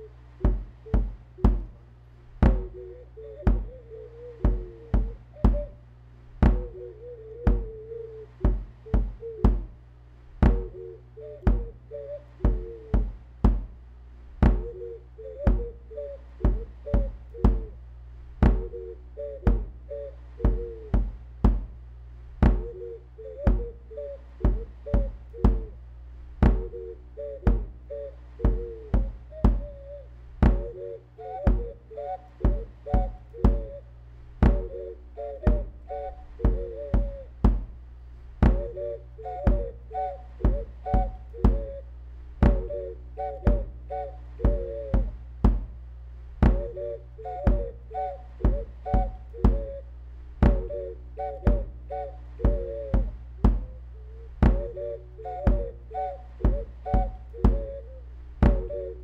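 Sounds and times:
ocarina melody: 0.0s - 9.8s, 10.4s - 13.2s, 14.4s - 17.8s, 18.4s - 21.2s, 22.4s - 25.8s, 26.4s - 37.8s, 38.4s - 45.6s, 46.4s - 59.0s
drum machine kick beat: 0.4s - 1.8s, 2.4s - 2.8s, 3.5s - 3.7s, 4.4s - 5.7s, 6.4s - 6.8s, 7.5s - 7.7s, 8.4s - 9.8s, 10.4s - 10.7s, 11.4s - 11.7s, 12.4s - 13.8s, 14.4s - 14.7s, 16.4s - 17.7s, 18.4s - 18.7s, 19.5s - 19.7s, 20.4s - 21.8s, 22.4s - 22.7s, 23.5s - 23.7s, 24.4s - 25.7s, 26.4s - 26.7s, 27.5s - 27.7s, 28.4s - 29.7s, 30.4s - 30.8s, 31.5s - 31.7s, 32.4s - 33.7s, 34.4s - 34.7s, 36.4s - 37.8s, 38.4s - 38.8s, 39.5s - 39.7s, 42.4s - 42.7s, 43.5s - 43.7s, 44.4s - 45.8s, 46.4s - 46.8s, 47.5s - 47.7s, 48.4s - 49.7s, 50.4s - 50.7s, 51.5s - 51.7s, 52.4s - 53.7s, 54.4s - 54.7s, 55.5s - 55.7s, 56.4s - 57.8s, 58.4s - 58.7s.

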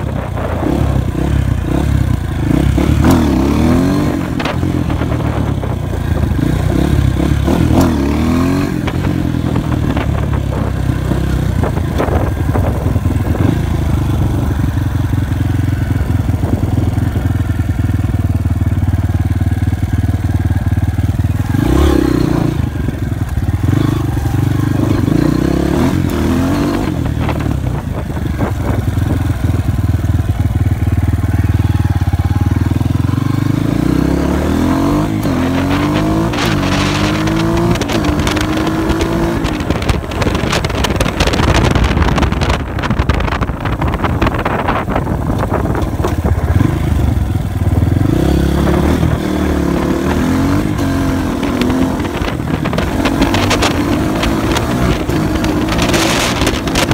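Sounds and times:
dirt bike engine accelerating: 0.0s - 56.9s
wind noise: 0.0s - 56.9s.

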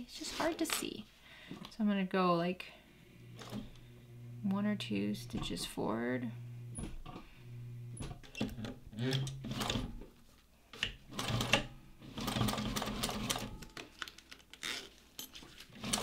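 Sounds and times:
sewing machine stitching: 3.3s - 4.2s, 7.8s - 10.0s, 10.8s - 13.7s, 15.7s - 16.0s.

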